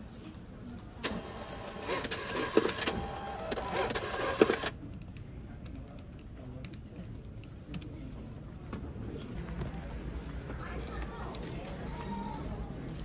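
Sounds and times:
receipt printer printing: 1.0s - 4.8s.

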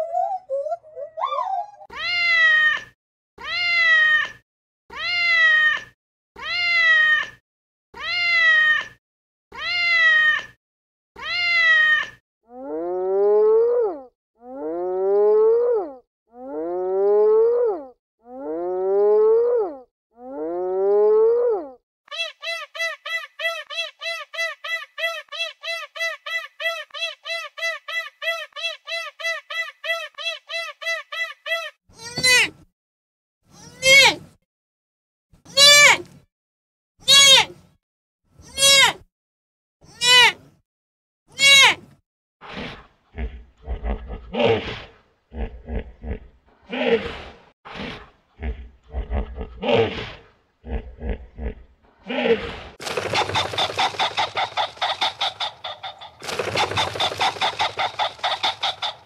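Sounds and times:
animal calls: 52.8s - 59.0s.

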